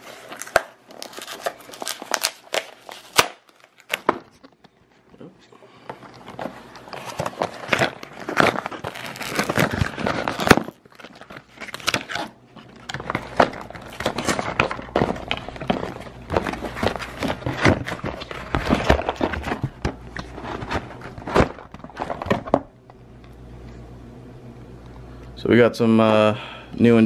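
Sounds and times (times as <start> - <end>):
package being torn open: 0.0 - 4.6, 6.1 - 22.5.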